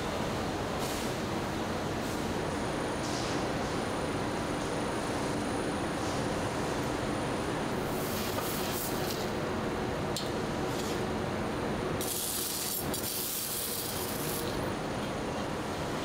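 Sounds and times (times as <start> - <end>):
factory machine drone: 0.0 - 16.0.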